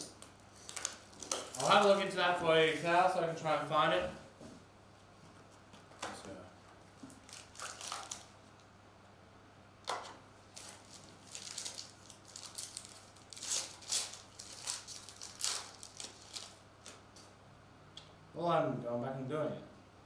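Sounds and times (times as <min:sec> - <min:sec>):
foil pack crinkling and tearing: 0:00.1 - 0:03.1, 0:07.1 - 0:08.6, 0:10.5 - 0:17.0.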